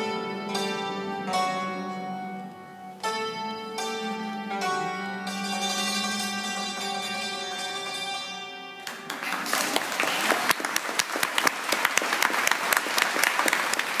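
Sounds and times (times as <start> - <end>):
hammered dulcimers ringing: 0.0 - 9.1
audience applause: 8.8 - 14.0.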